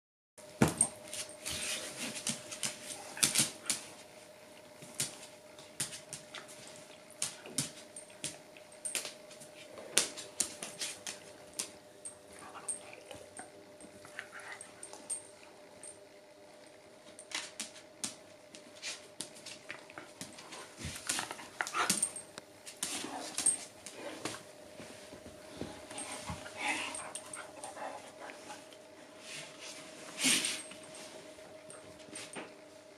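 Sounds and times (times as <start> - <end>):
claws and chain collars rattling: 21.1 - 22.3, 22.9 - 24.2, 25.9 - 28.2.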